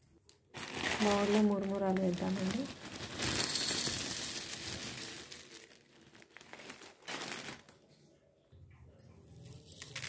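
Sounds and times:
plastic packet crinkling: 0.5 - 8.0, 9.6 - 10.0
puffed rice pouring into bowl: 0.9 - 5.8.

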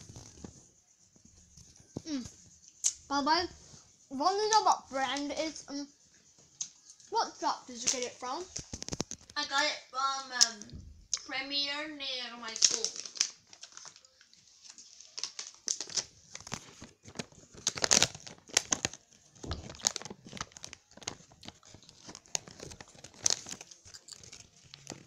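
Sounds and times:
wrapper crinkling: 7.7 - 9.4, 12.5 - 25.0.

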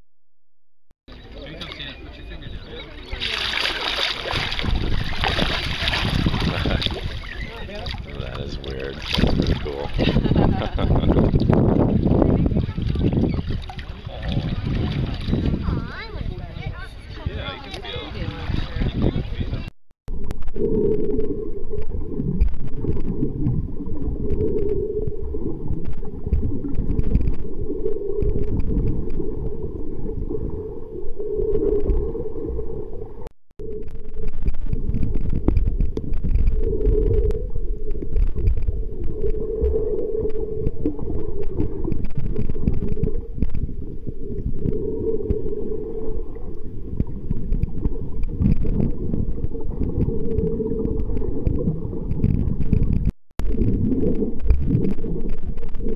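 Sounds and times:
water sloshing: 1.1 - 19.6
muffled underwater rumble: 1.1 - 55.9.

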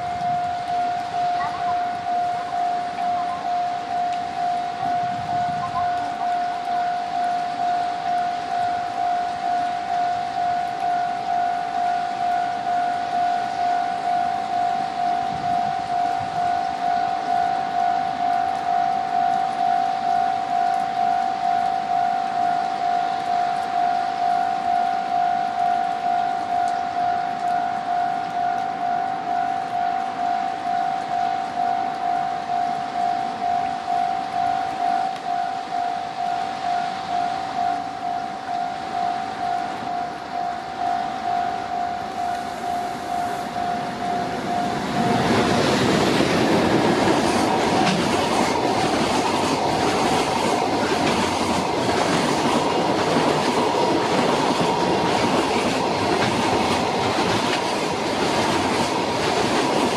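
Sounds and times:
level crossing warning bell: 0.0 - 59.9.

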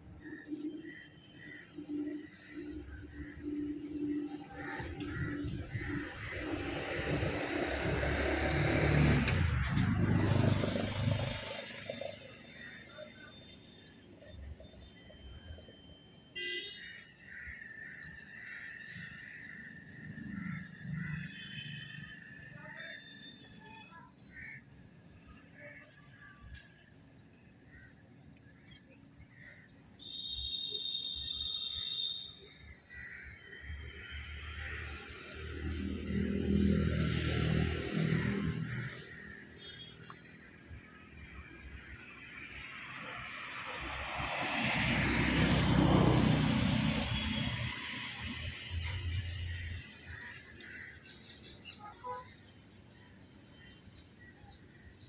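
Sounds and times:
motor vehicle passing by: 3.2 - 12.8, 34.0 - 39.6, 41.2 - 50.5.

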